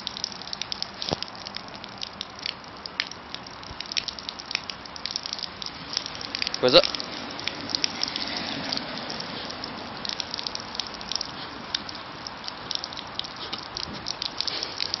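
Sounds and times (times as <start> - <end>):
water jet gushing: 0.0 - 15.0
dog biting at water splashes: 3.8 - 15.0.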